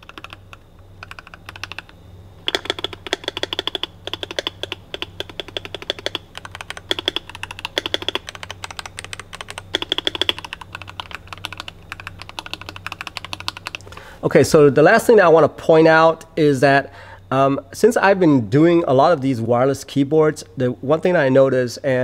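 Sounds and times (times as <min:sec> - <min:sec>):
mechanical keyboard typing: 0:00.0 - 0:13.8.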